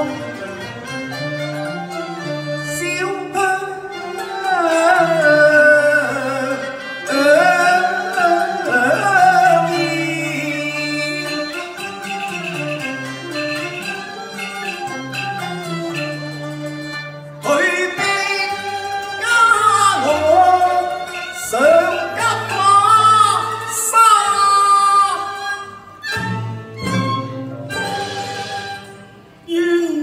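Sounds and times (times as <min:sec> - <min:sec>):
traditional ensemble with bowed strings: 0:00.0 - 0:30.0
opera singer: 0:02.7 - 0:11.7, 0:17.4 - 0:25.7, 0:29.4 - 0:30.0.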